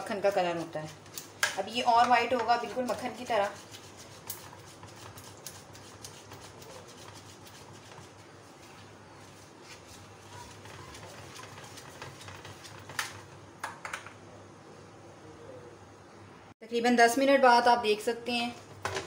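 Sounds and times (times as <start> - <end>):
whisk scraping metal saucepan: 0.0 - 13.3.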